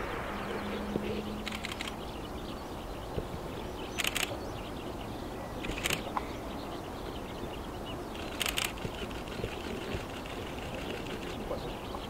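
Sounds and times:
outdoor background hiss: 0.0 - 12.0
rapid clicks: 1.4 - 1.9, 8.2 - 11.4.

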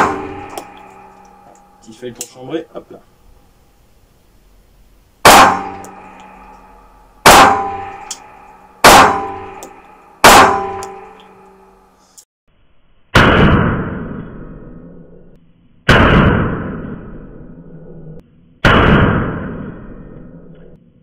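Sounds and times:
pistol shots echoing: 0.0 - 1.3, 5.2 - 6.4, 7.2 - 11.2.

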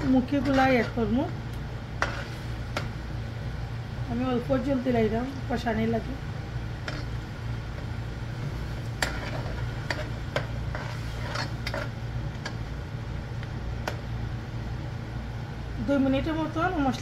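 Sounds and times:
metal spoon scraping metal pot: 0.0 - 1.1, 2.0 - 2.4, 6.8 - 7.2, 9.0 - 11.9
steady low hum: 0.0 - 17.0.

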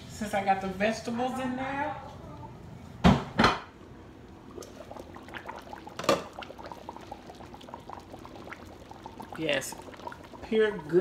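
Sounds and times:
roast simmering and bubbling: 3.7 - 11.0.

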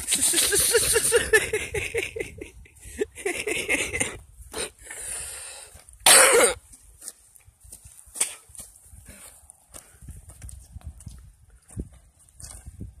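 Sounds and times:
man coughing: 6.0 - 6.6.

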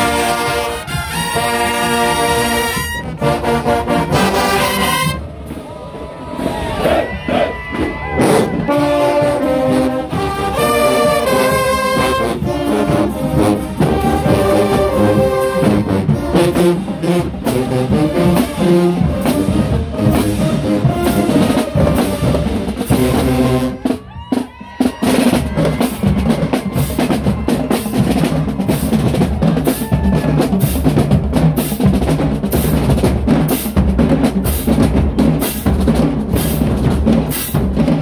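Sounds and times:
horns holding notes: 0.0 - 24.0
marching drumline cadence: 0.0 - 38.0.

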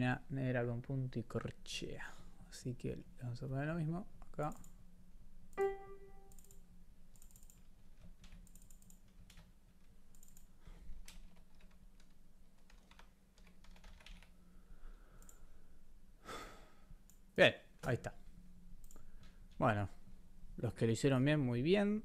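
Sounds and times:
computer keyboard typing: 7.2 - 9.5, 10.1 - 14.3.

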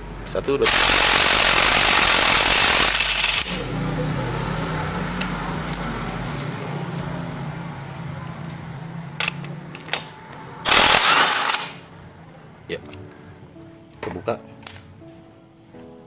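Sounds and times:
impact wrench hammering: 0.6 - 3.6, 9.2 - 11.8.

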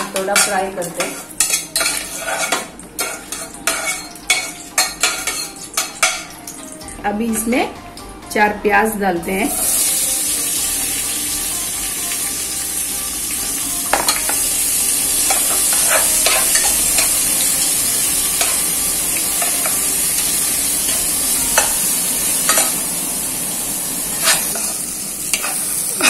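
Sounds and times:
onions sizzling in oil: 0.0 - 7.5, 9.2 - 26.0
steel spoon scraping a pot: 0.4 - 6.2, 15.2 - 17.7, 24.1 - 25.6.

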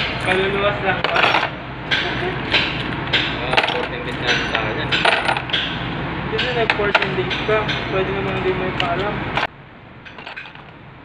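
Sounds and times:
metal parts clinking: 0.0 - 5.8, 6.5 - 10.8
steady low hum: 0.0 - 11.0.

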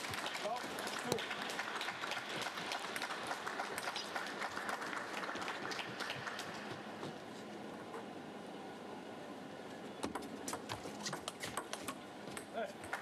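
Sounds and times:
crowd applause: 0.0 - 7.0.

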